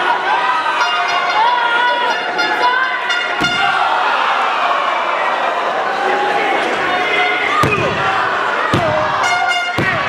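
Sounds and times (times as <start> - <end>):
crowd noise and shouting: 0.0 - 10.0.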